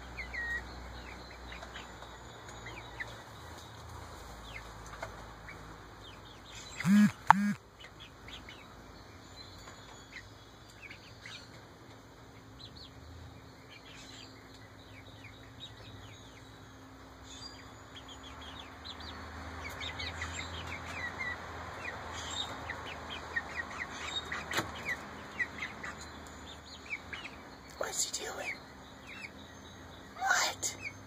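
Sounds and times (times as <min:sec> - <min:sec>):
chicks peeping and chirping: 0:00.0 - 0:31.0
sharp click: 0:06.9 - 0:07.5.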